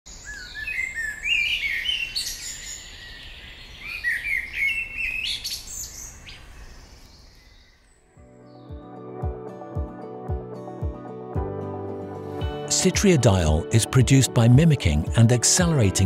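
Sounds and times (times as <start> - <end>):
birds chirping and trilling: 0.1 - 9.2.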